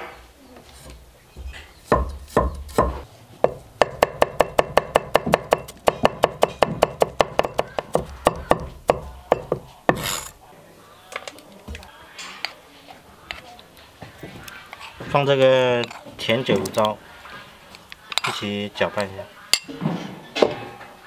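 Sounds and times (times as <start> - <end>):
cleaver chopping on wooden block: 1.8 - 10.3.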